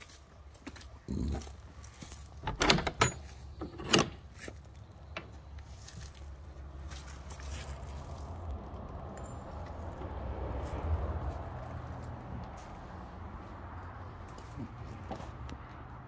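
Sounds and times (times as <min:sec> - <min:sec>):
keys and lock rattling: 0:02.3 - 0:04.5
door clunks and scrapes: 0:02.4 - 0:04.5.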